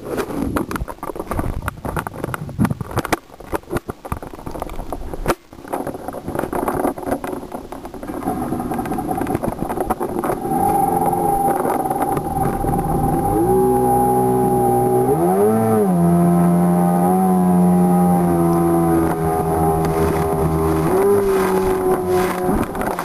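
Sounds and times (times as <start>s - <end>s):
jet ski engine: 8.0s - 23.0s
knocks and splashes: 18.2s - 23.0s.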